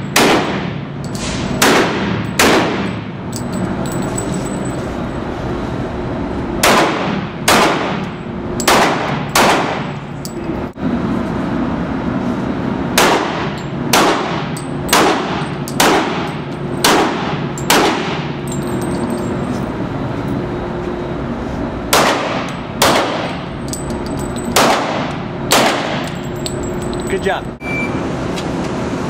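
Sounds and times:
handgun shots echoing indoors: 6.6s - 9.8s.

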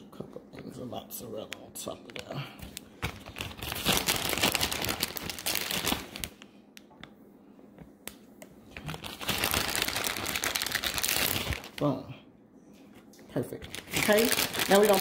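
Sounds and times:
plastic bag crinkling: 2.0s - 6.5s, 8.8s - 12.0s, 13.4s - 15.0s.

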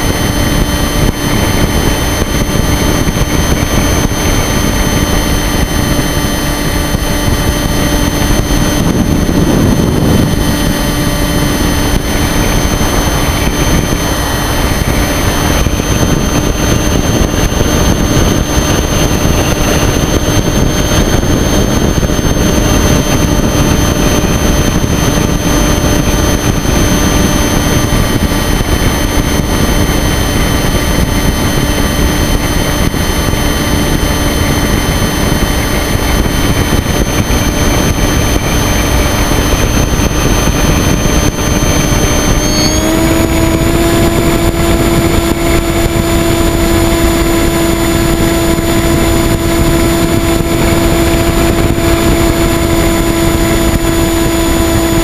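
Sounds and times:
model airplane motor droning: 0.0s - 55.0s
wind rush over microphone: 0.0s - 55.0s.

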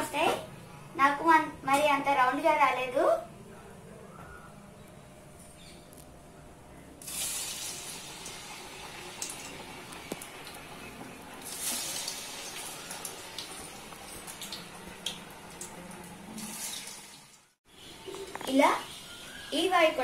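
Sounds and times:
hot oil sizzling and crackling: 7.0s - 10.8s, 11.4s - 20.0s.

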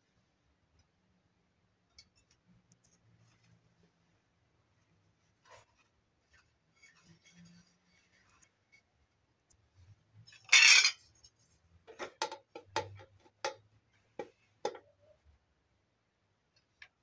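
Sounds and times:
spoon scraping clatter: 10.3s - 11.0s.

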